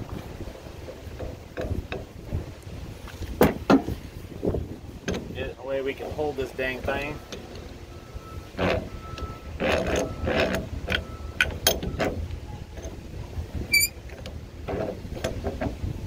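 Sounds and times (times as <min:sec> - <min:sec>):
metal clicks and rattles: 0:08.6 - 0:13.0, 0:13.7 - 0:15.9
high squeak: 0:13.7 - 0:14.0.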